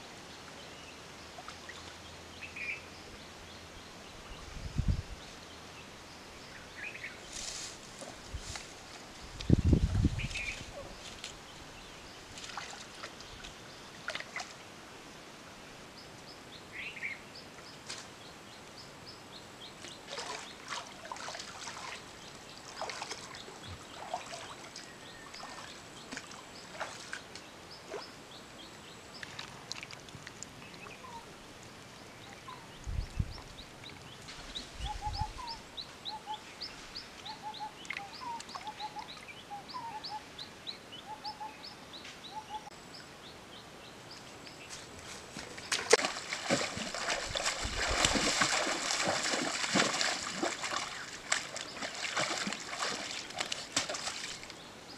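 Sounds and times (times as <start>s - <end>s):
water splashing and sloshing: 12.3s - 14.7s, 19.8s - 28.2s, 29.1s - 31.8s, 44.8s - 54.6s
birds chirping: 30.4s - 54.9s.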